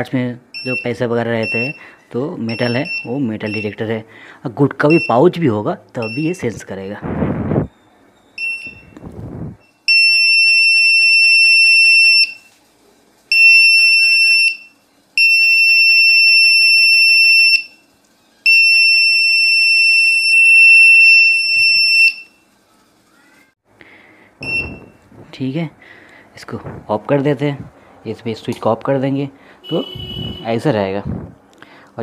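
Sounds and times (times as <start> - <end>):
metal detector alarm tone: 0.6 - 1.8, 2.5 - 3.8, 6.0 - 6.4, 24.4 - 24.9
short beep: 24.4 - 25.0, 29.6 - 30.5.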